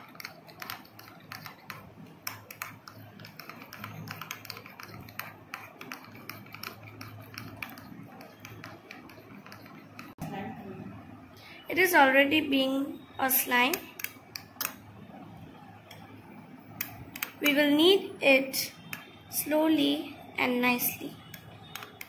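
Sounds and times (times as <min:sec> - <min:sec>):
spoon stirring slime: 0:00.0 - 0:10.2, 0:13.0 - 0:22.0.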